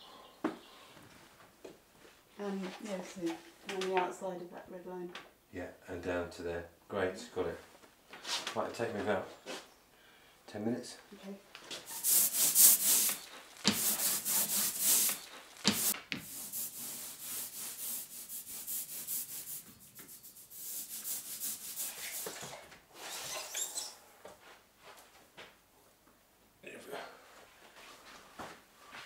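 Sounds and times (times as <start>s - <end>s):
ink roller rasping on slab: 11.9s - 22.4s.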